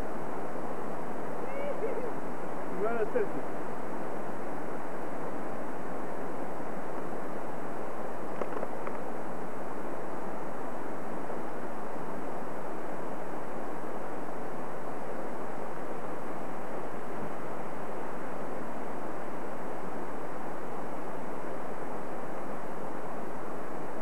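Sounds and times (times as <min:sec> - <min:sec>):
steady rushing noise: 0:00.0 - 0:24.0.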